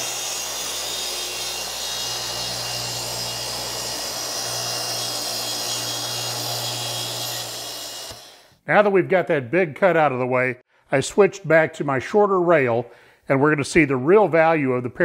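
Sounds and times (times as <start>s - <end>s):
track saw cutting plywood: 0.0s - 8.6s.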